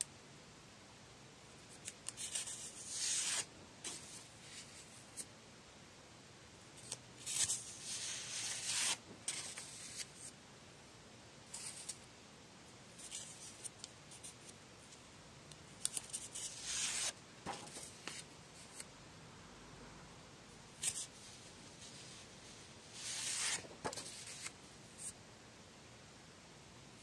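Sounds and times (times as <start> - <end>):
paper sheets rustling: 6.8 - 10.3, 15.9 - 18.8, 23.0 - 25.1.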